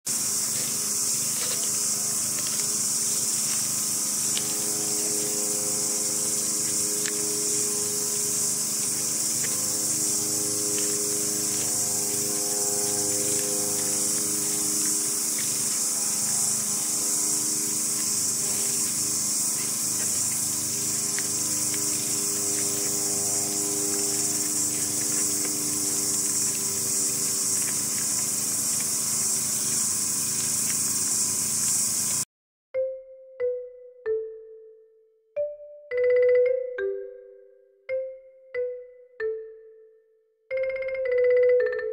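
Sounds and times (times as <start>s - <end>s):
generator hum: 0.1s - 32.2s
high-pitched hiss: 0.1s - 32.3s
deer crunching corn: 0.4s - 32.2s.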